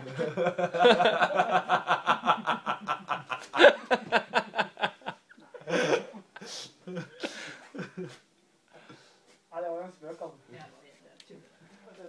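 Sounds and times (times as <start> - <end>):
person laughing heartily: 0.0 - 8.2.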